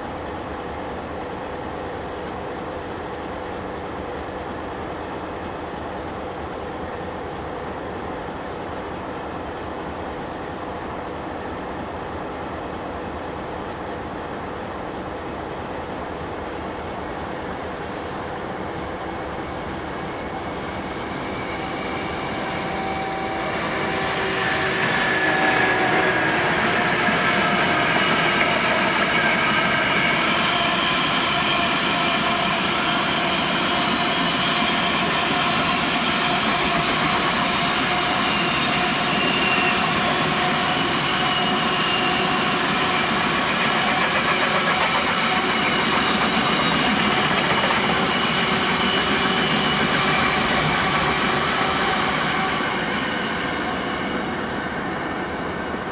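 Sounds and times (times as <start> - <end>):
steel wheels squealing: 19.0 - 55.9.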